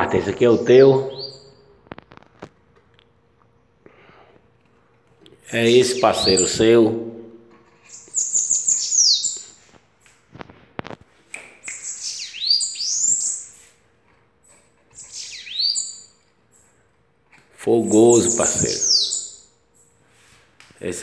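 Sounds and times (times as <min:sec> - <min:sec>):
bird singing: 0:00.0 - 0:01.8, 0:05.5 - 0:07.0, 0:07.8 - 0:09.7, 0:11.6 - 0:13.7, 0:14.4 - 0:16.9, 0:17.6 - 0:20.0.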